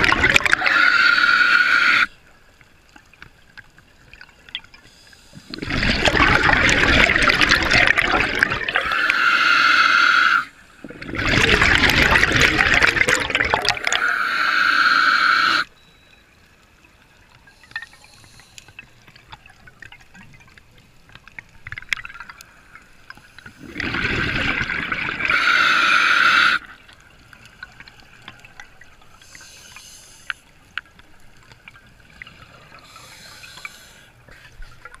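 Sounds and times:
bubbles gurgling underwater: 0.0s - 0.7s, 5.5s - 8.9s, 10.8s - 14.1s, 23.4s - 25.4s
faint ticks and hisses: 0.7s - 5.6s, 14.0s - 23.6s, 25.3s - 35.0s.

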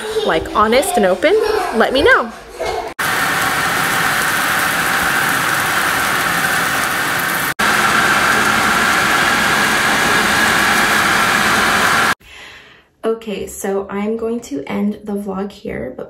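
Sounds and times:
food sizzling in a frying pan: 3.0s - 12.2s.

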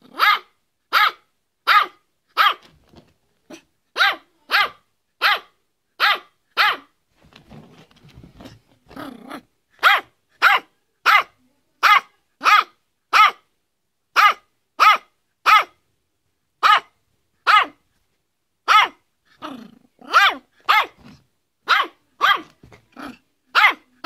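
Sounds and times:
small dog yapping: 0.1s - 2.7s, 3.5s - 6.9s, 17.5s - 17.8s, 18.7s - 19.0s, 20.0s - 21.1s, 21.7s - 22.6s, 23.6s - 23.9s.

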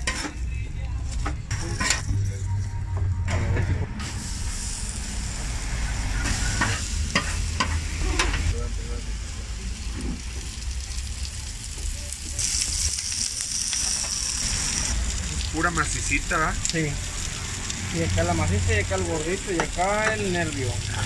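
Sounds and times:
onions sizzling on a griddle: 4.0s - 21.0s.

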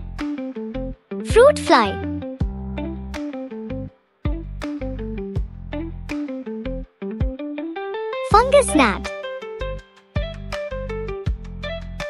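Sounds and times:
gentle background music: 1.2s - 4.0s, 8.3s - 9.1s.

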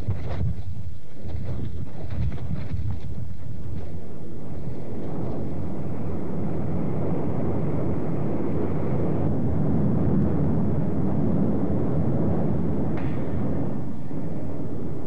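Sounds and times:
lava fountains roaring: 3.2s - 15.0s.

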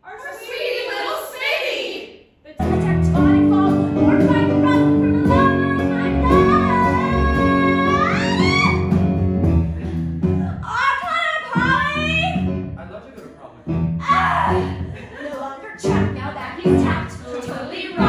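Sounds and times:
live band playing: 2.6s - 10.4s
woman singing into a microphone: 2.8s - 8.8s.

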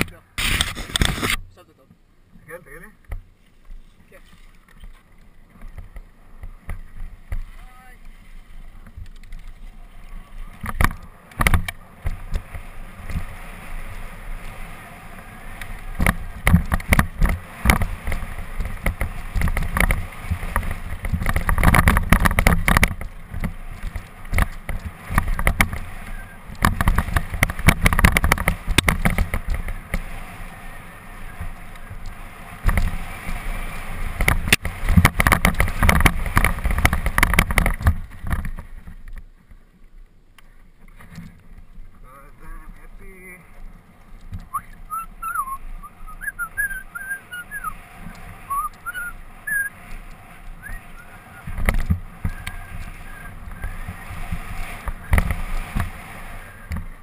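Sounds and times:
tyres crunching on dirt: 2.4s - 57.0s
wind rumble on microphone: 4.8s - 39.6s, 40.9s - 57.0s
mountain bike rattling and knocking: 15.7s - 30.4s, 34.1s - 39.2s.

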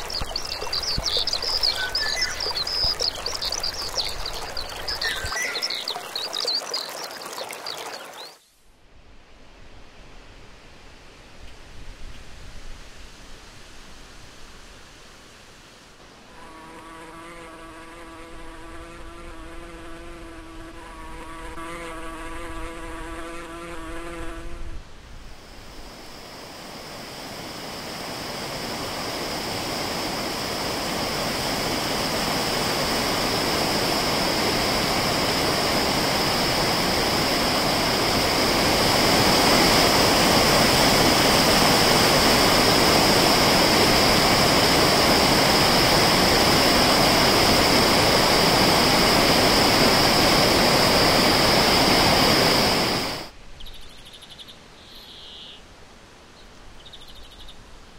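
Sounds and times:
water pouring over a weir: 0.0s - 8.4s
flying insect buzzing: 16.3s - 24.8s.

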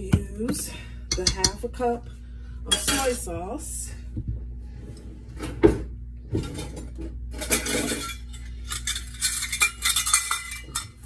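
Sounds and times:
kitchen utensils clinking: 2.7s - 3.3s, 6.4s - 11.0s.

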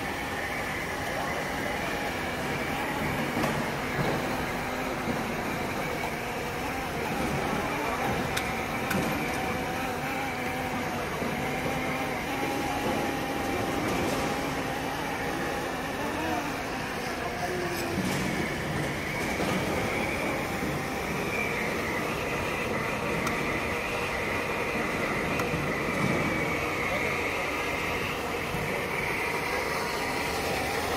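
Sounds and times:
floor-scrubbing robot motor hum: 0.0s - 30.9s
murmuring voices: 0.2s - 30.9s.

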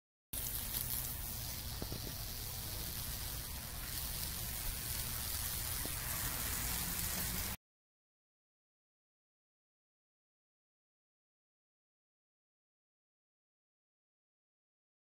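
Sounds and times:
electrical sizzling hiss and crackle: 0.4s - 7.6s.

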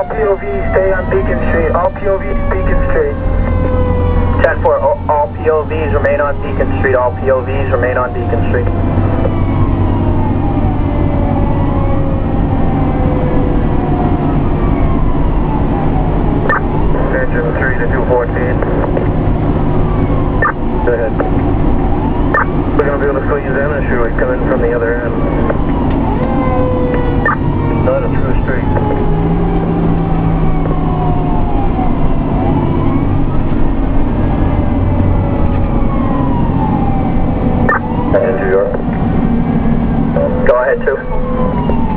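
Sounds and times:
engine rumble: 0.0s - 41.9s
road noise: 0.0s - 41.9s
siren wailing: 0.0s - 41.9s.

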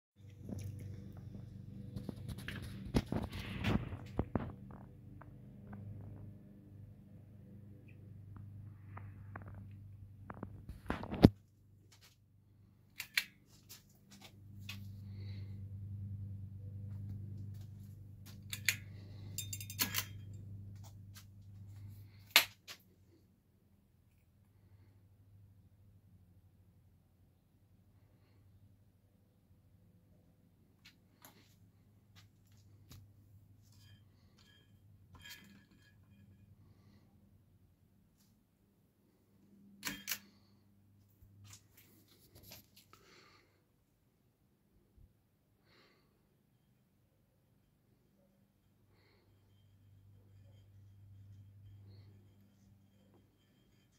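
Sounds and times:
fan clicks and rattles: 12.9s - 14.9s, 17.4s - 21.2s.

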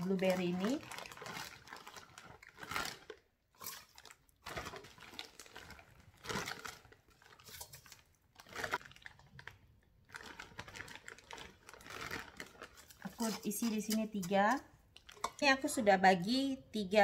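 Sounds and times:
frozen berries rattling into pot: 0.0s - 9.4s, 10.1s - 15.8s
plastic bag crinkling: 0.0s - 15.7s.

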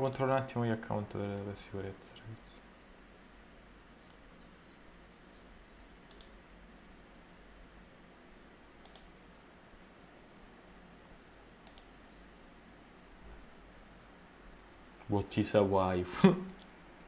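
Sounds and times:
faint room hum: 0.0s - 17.0s
computer mouse double clicks: 6.1s - 6.4s, 8.8s - 9.1s, 11.6s - 11.9s.

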